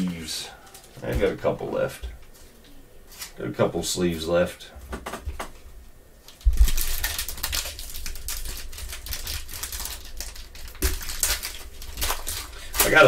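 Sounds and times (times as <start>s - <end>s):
foil pack crinkling: 6.2s - 13.0s.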